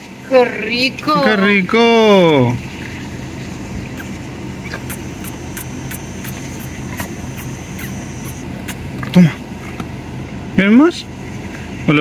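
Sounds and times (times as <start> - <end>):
diesel car engine idling: 0.0 - 12.0
animal chewing carrot crunching: 3.9 - 9.2.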